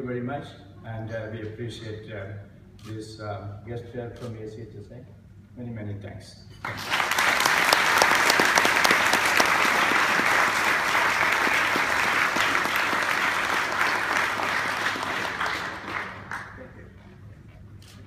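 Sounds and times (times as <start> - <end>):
audience applauding: 6.6 - 17.0.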